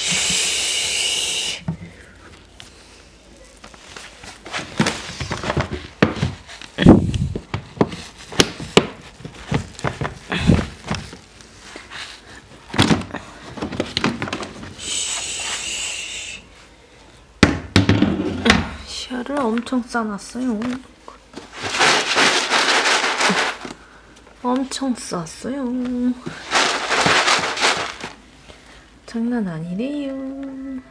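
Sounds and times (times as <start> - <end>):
steady hiss: 0.0 - 3.0, 14.8 - 16.7.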